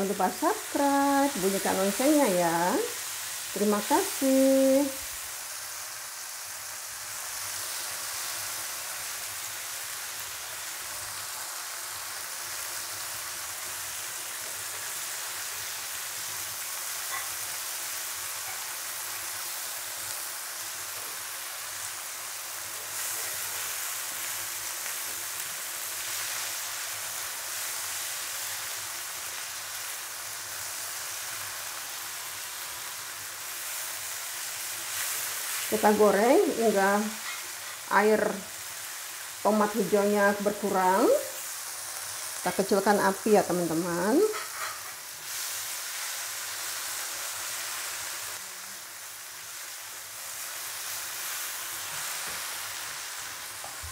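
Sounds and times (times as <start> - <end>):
vegetables sizzling in oil: 0.0 - 53.9
spatula stirring in wok: 44.3 - 45.5.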